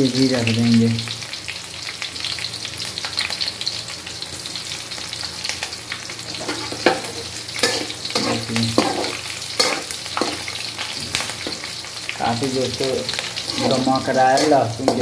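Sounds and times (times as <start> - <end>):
garlic sizzling in hot oil: 0.0 - 15.0
steel spoon scraping a pan: 6.3 - 11.7, 13.1 - 15.0.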